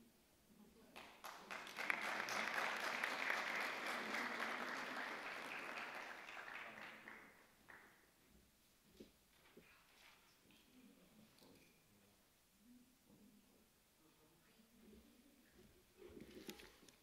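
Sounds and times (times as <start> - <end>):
audience applauding: 1.0 - 8.0.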